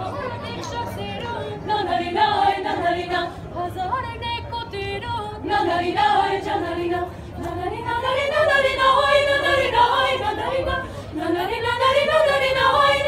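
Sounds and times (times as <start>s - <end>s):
choir singing a cappella: 0.0s - 13.0s.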